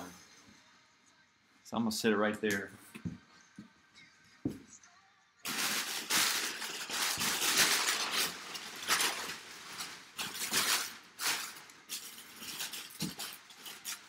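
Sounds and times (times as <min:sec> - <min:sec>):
packing paper crinkling: 0:05.4 - 0:14.0.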